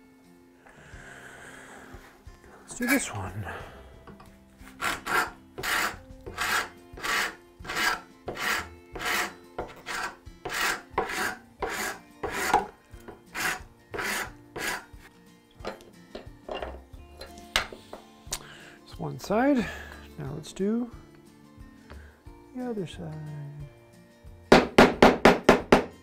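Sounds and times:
hand file rasping on wood: 4.6s - 14.9s.

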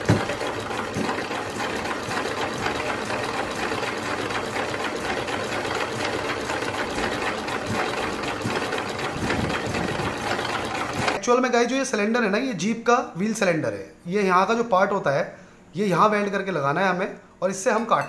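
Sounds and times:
single-cylinder engine clattering: 0.0s - 11.2s.

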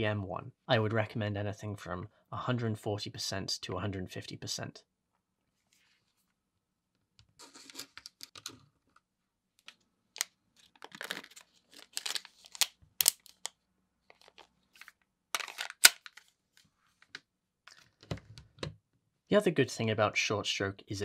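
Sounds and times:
plastic pouch crinkling: 10.2s - 16.3s.

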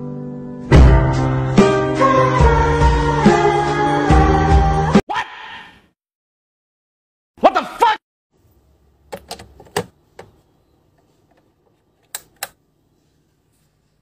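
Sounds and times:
man shouting: 7.4s - 8.0s
power strip switches clicking: 9.1s - 10.4s, 12.0s - 12.6s.

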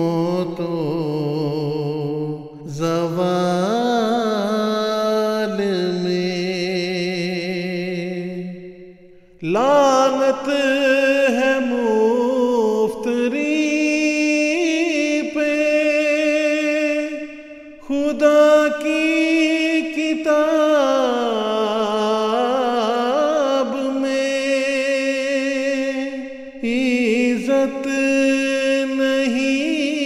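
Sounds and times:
person chanting: 0.0s - 30.0s.

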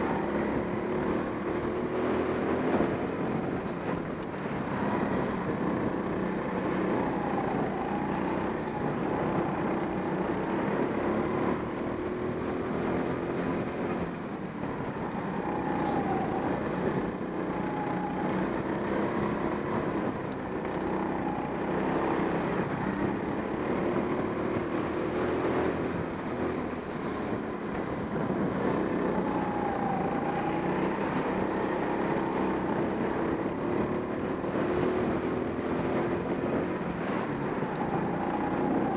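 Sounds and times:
go-kart motor at speed: 0.0s - 38.9s.

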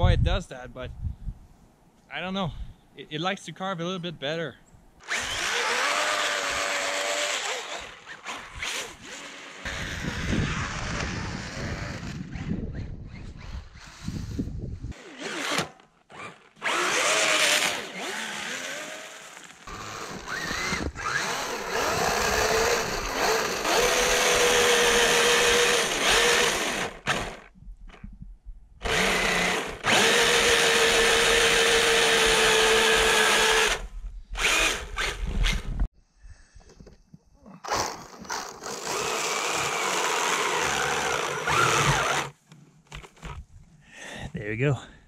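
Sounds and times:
electric motor whining: 5.0s - 12.5s, 16.2s - 27.4s, 28.8s - 35.7s, 37.7s - 42.4s.

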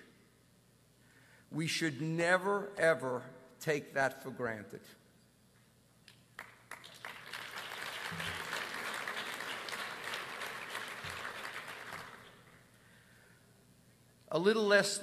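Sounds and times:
audience applauding: 6.4s - 12.6s.

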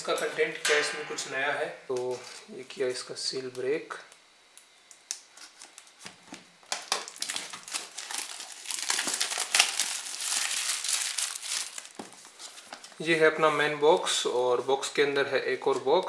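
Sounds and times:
plastic wrap crackling: 5.0s - 13.0s.

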